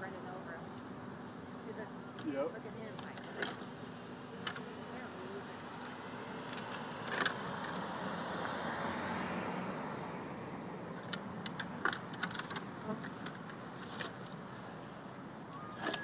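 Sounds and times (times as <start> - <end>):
highway traffic passing: 0.0 - 16.0.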